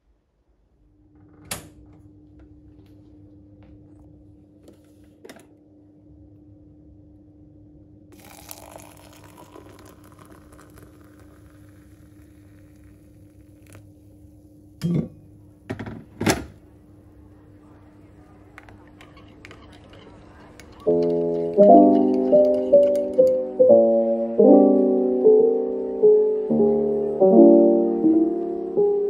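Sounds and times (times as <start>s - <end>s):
water poured into mug: 8.2s - 14.3s.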